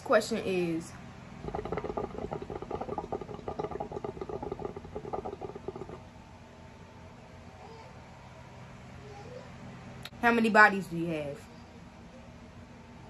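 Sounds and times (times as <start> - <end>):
hookah water bubbling: 1.4 - 6.1.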